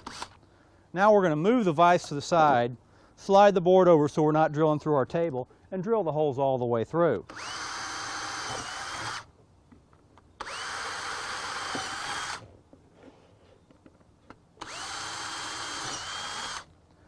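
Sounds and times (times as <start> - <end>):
cordless drill boring wood: 0.0 - 0.4, 7.3 - 9.3, 10.4 - 12.4, 14.6 - 16.7.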